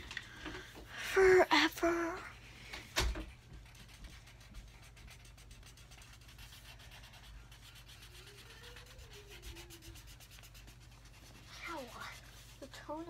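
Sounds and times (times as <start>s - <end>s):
markers scribbling on paper: 3.4s - 13.0s.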